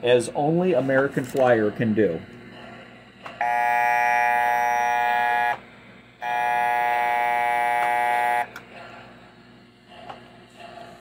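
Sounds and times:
toy diesel horn blasts: 3.4s - 5.6s, 6.2s - 8.5s.

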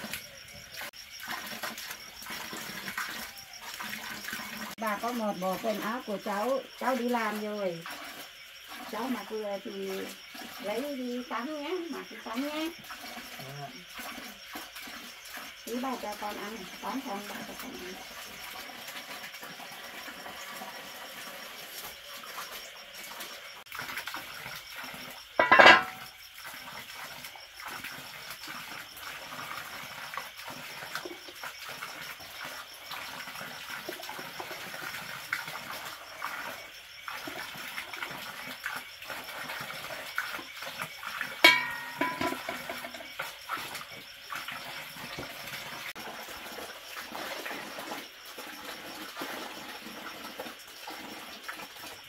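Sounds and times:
water scooped into plastic basin: 33.3s - 50.1s.

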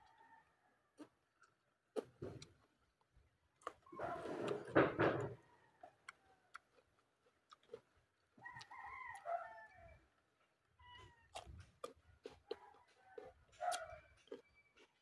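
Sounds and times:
rooster crowing: 8.4s - 10.0s.

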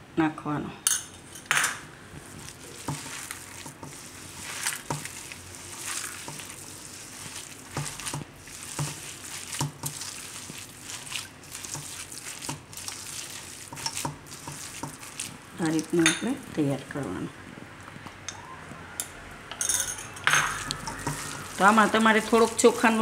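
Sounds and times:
hands squelching wet mixture: 2.1s - 17.2s, 20.5s - 23.0s.

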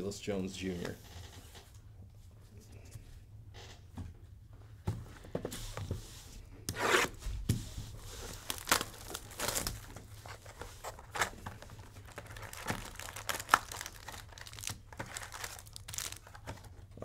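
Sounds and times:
wrappers crinkling and tearing: 8.0s - 16.8s.

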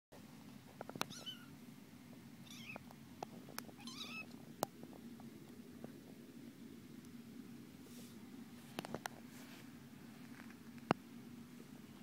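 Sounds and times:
kitten mewing: 1.0s - 1.6s, 2.4s - 2.8s, 3.8s - 4.3s.

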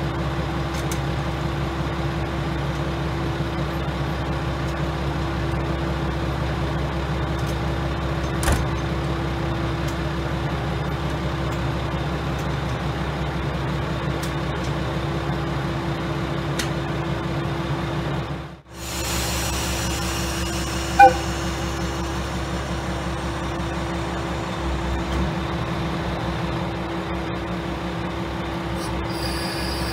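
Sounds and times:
diesel engine idling drone: 8.9s - 29.9s.

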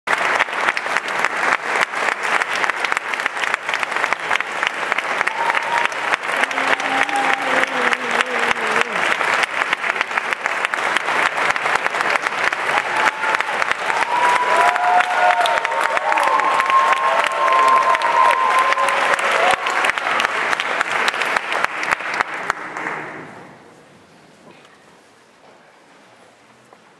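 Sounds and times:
audience applauding: 0.1s - 23.5s.

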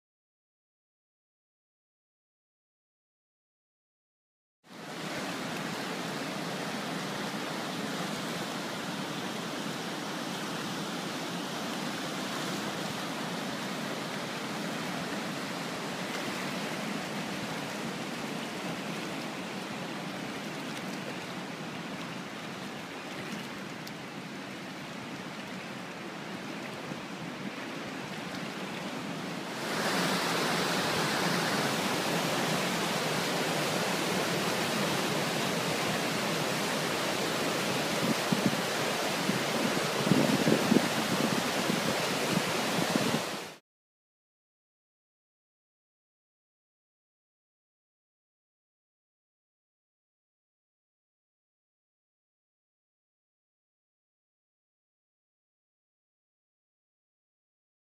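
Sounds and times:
rapids rushing: 4.8s - 23.7s, 24.7s - 43.6s.

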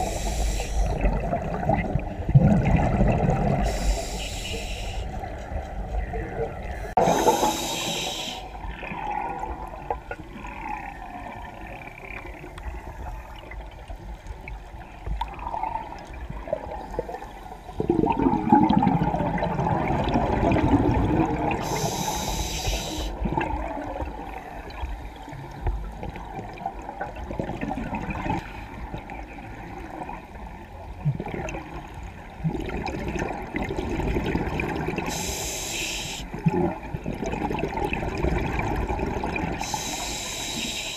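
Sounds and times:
hissing inhale through regulator: 0.0s - 1.1s, 3.6s - 5.2s, 6.8s - 8.6s, 21.6s - 23.3s, 35.0s - 36.4s, 39.6s - 40.9s
exhaled bubbles rushing: 0.8s - 3.8s, 15.2s - 21.9s, 23.1s - 24.9s, 25.9s - 29.0s, 31.0s - 35.1s, 36.3s - 39.7s.

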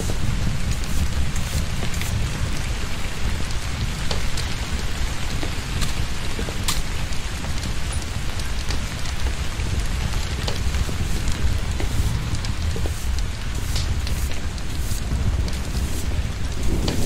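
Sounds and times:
heavy rain falling: 0.0s - 17.0s
water drips and splashes: 0.0s - 17.0s
deep low rumble: 9.5s - 17.0s.

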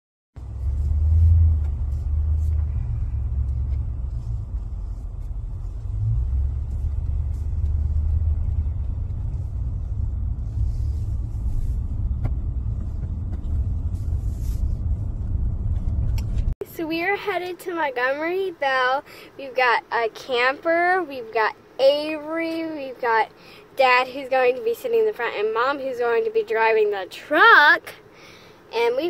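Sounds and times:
engine and road rumble: 0.4s - 29.0s.

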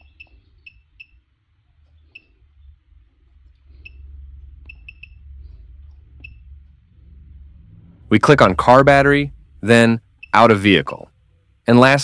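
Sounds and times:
low hum: 0.0s - 12.0s
short high beeps: 3.8s - 5.4s.

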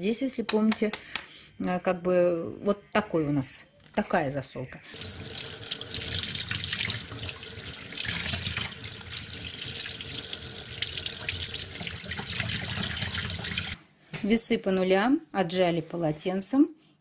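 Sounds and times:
kitchen tap running: 4.9s - 13.8s
water splashing on meat in sink: 4.9s - 13.8s.

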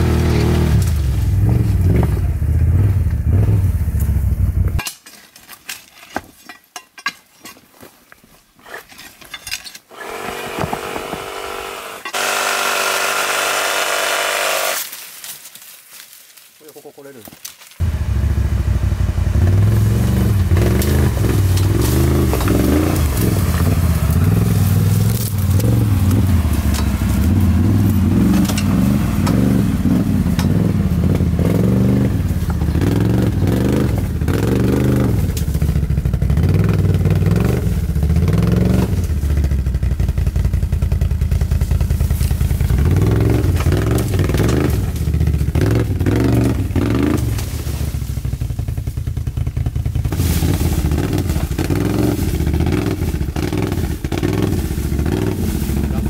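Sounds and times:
branches and stones scraping: 0.0s - 2.5s, 3.4s - 18.0s, 19.7s - 56.0s
atv engine revving: 0.0s - 4.8s, 10.0s - 14.8s, 17.8s - 56.0s.

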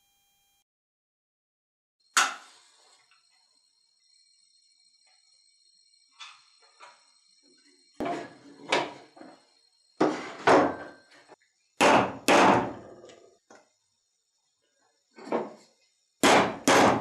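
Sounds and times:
hammer striking anvil: 16.2s - 17.0s.

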